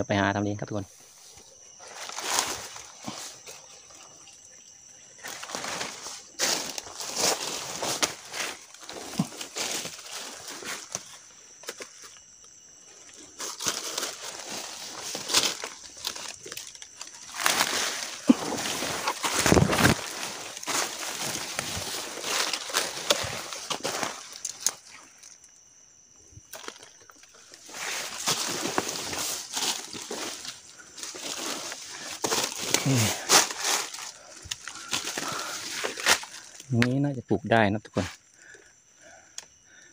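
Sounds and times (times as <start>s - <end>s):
footsteps crunching dry leaves: 1.8s - 3.7s, 5.2s - 11.2s, 13.3s - 24.9s, 27.5s - 36.6s
brushing past undergrowth: 13.3s - 24.9s, 27.6s - 36.5s.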